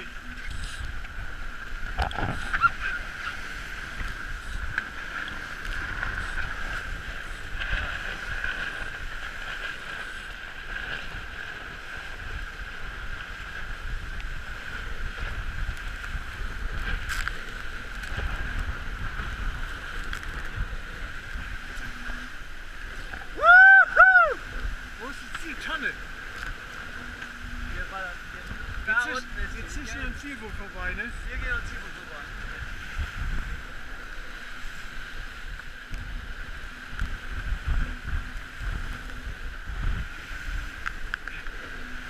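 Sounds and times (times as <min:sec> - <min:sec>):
rushing water: 0:00.0 - 0:42.0
wind buffeting microphone: 0:00.0 - 0:42.0
person whooping: 0:23.3 - 0:24.5.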